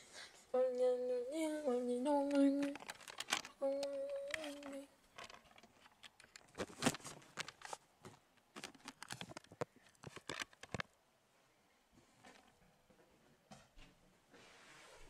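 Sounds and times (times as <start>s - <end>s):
handling clicks and rustles: 2.2s - 11.0s.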